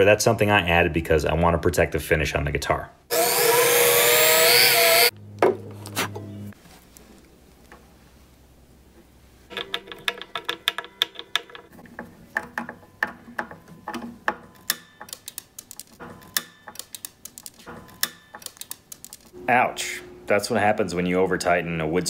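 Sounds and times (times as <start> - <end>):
screwdriver clicking: 14.6 - 19.3.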